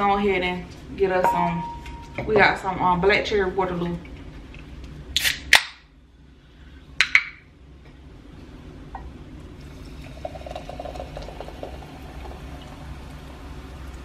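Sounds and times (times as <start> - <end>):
can cracked open with hiss: 5.2 - 5.7
sparkling water pouring and fizzing: 9.6 - 14.0.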